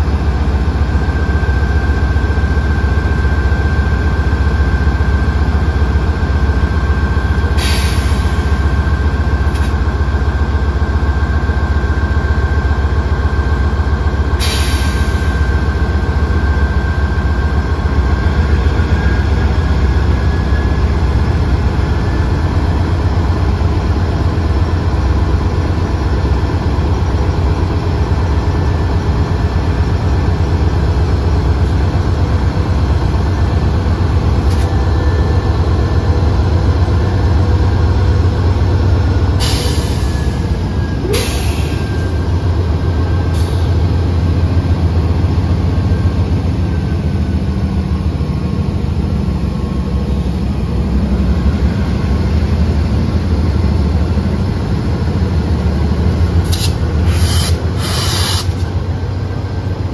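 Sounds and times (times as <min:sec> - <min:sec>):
freight train rumbling past: 0:00.0 - 0:59.9
short sharp noise bursts: 0:56.4 - 0:58.7.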